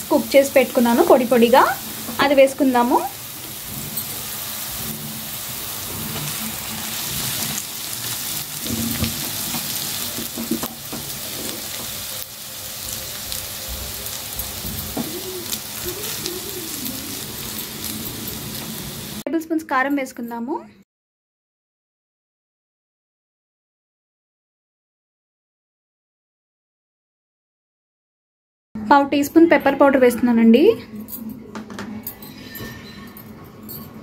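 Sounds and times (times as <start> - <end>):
food sizzling in frying pan: 0.0 - 19.2.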